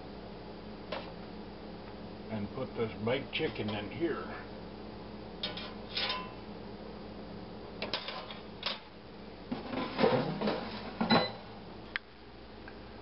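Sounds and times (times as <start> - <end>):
air fryer basket clattering: 5.4 - 6.4, 9.5 - 11.4.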